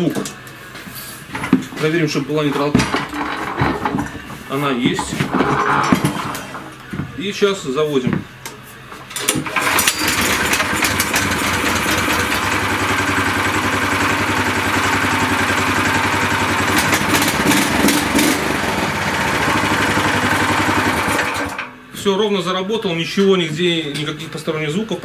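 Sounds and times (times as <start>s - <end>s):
engine pull-started: 9.2s - 21.7s
petrol engine running steadily: 9.4s - 21.6s.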